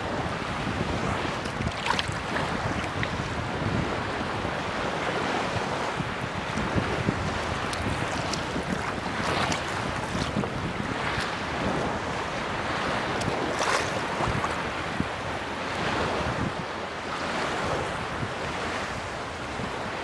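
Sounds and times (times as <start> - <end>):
lake waves lapping and splashing: 0.0 - 20.0
wind noise on microphone: 0.0 - 20.0.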